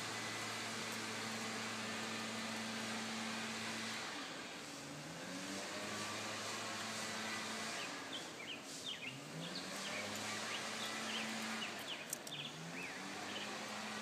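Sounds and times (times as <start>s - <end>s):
low engine hum: 0.0s - 14.0s
small birds chirping: 7.8s - 13.7s.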